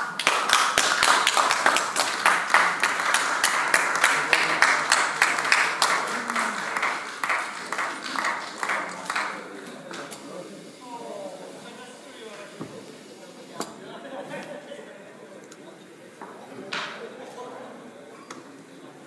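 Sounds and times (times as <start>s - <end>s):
crowd applauding: 0.0s - 10.1s.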